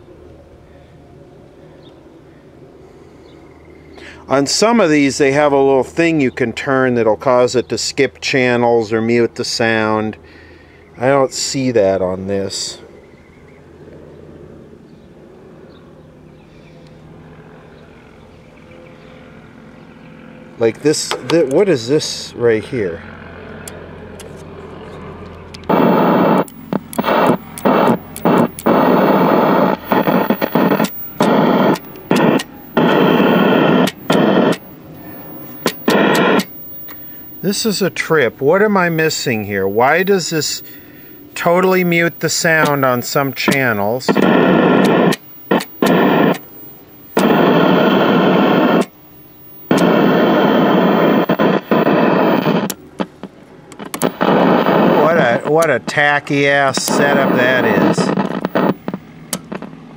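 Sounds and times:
loud static hiss from tv: 0:25.7 - 0:53.2, 0:53.8 - 0:59.6.

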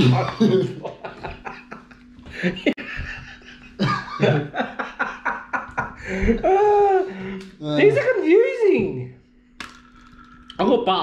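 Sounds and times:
men laughing: 0:00.0 - 0:07.4.

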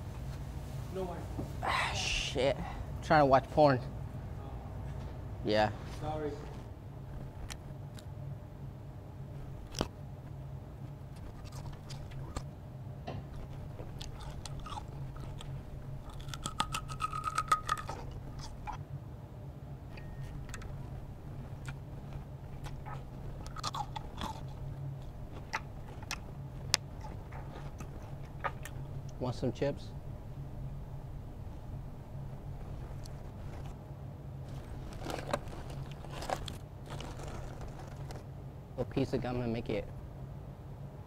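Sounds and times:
low hum: 0:03.7 - 0:41.0
chewing through megaphone: 0:11.0 - 0:12.5, 0:13.3 - 0:18.8, 0:20.3 - 0:29.2.

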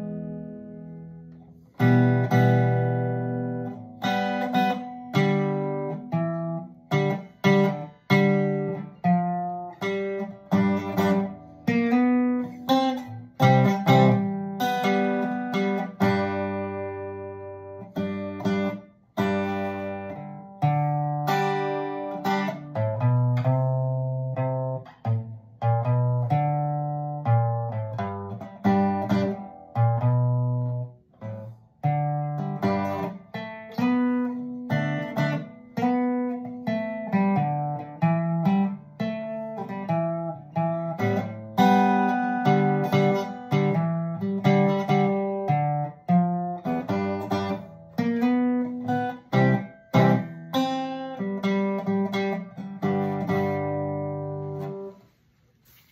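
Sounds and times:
acoustic guitar playing: 0:00.0 - 0:55.9.

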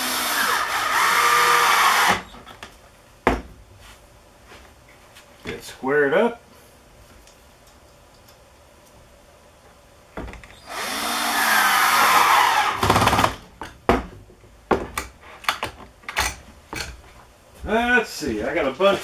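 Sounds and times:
cordless drill driving screw: 0:00.0 - 0:02.2, 0:10.6 - 0:13.1.

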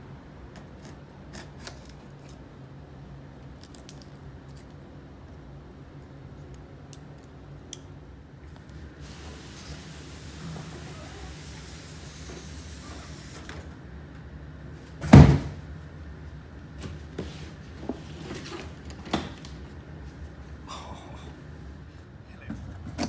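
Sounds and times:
cardboard box thump: 0:15.0 - 0:15.6.

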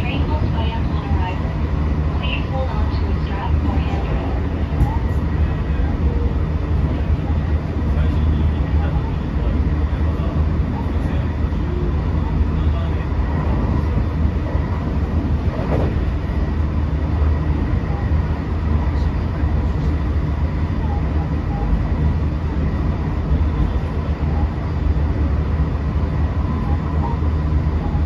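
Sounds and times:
train wheels rumbling on rails: 0:00.0 - 0:28.0.

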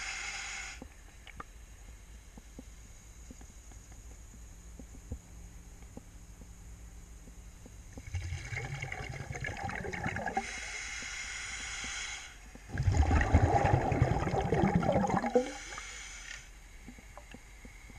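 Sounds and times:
crackling bubbles: 0:07.7 - 0:11.1, 0:12.5 - 0:15.8
underwater rushing water: 0:12.7 - 0:15.5.

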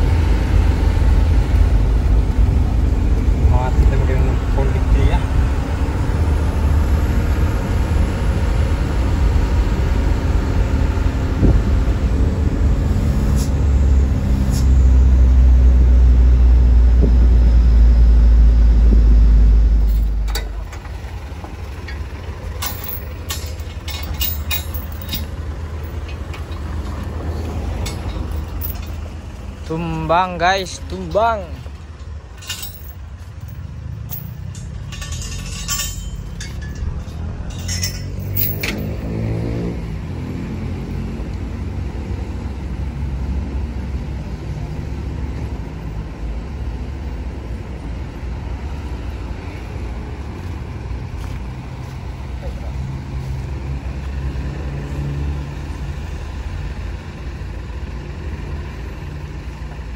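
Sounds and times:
truck engine idling: 0:00.0 - 0:59.9
short sharp clinks: 0:22.6 - 0:26.6, 0:32.0 - 0:39.0.

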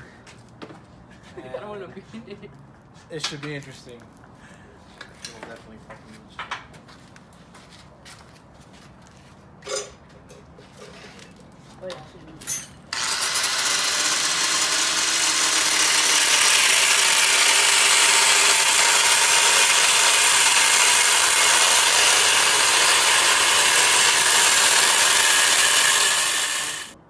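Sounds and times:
angle grinder grinding steel: 0:12.9 - 0:27.0.

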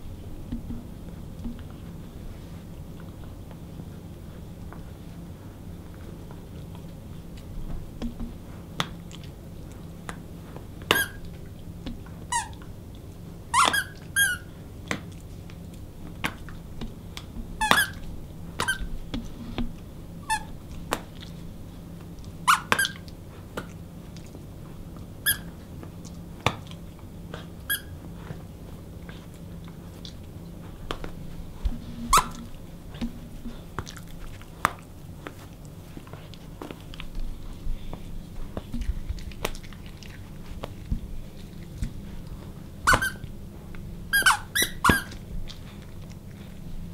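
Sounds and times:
dog toy squeaking: 0:10.9 - 0:11.2, 0:13.6 - 0:14.5, 0:17.6 - 0:18.0, 0:18.6 - 0:18.9, 0:22.5 - 0:23.0, 0:32.0 - 0:32.5, 0:42.9 - 0:43.2, 0:44.1 - 0:45.1.

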